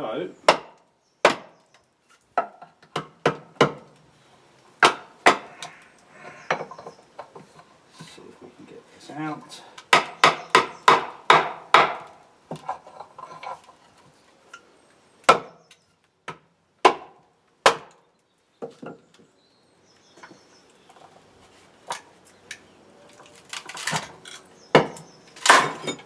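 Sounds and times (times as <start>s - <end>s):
wood creaking and crackling: 3.8s - 8.7s, 11.9s - 14.6s, 18.7s - 26.0s
sharp crack of log splitting: 15.2s - 18.0s, 23.4s - 25.9s.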